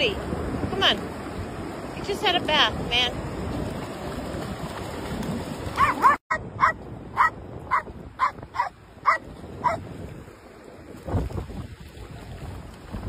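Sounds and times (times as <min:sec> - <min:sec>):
surf: 0:00.0 - 0:13.0
wind: 0:00.0 - 0:13.0
dog barking: 0:05.8 - 0:09.8.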